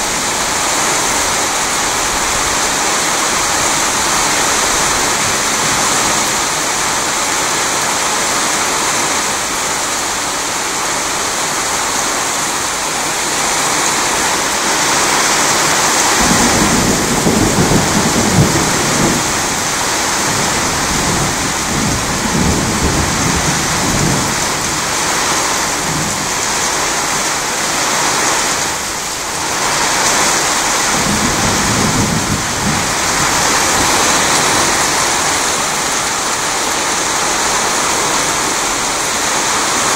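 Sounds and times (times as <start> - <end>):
heavy rain pouring: 0.0 - 39.9
thunder rumbling: 13.5 - 28.1, 29.4 - 39.8.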